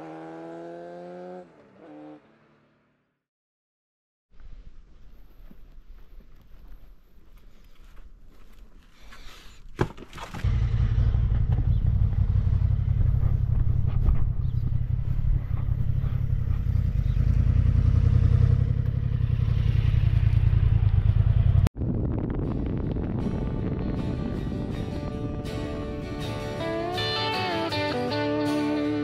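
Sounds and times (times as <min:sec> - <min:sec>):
motorcycle engine rumbling: 0:10.4 - 0:27.2.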